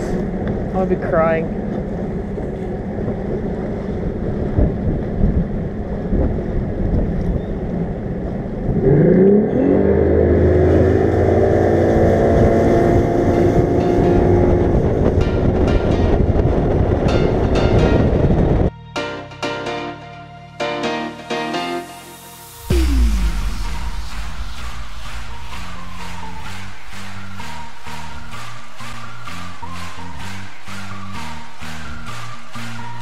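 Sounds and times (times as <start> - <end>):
wind buffeting microphone: 0.0 - 9.1, 9.9 - 18.7.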